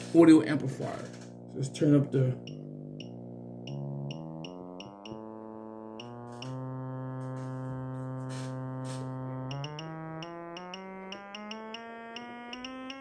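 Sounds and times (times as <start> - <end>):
low buzzy test tone: 0.0 - 13.0
small clicks: 8.3 - 13.0.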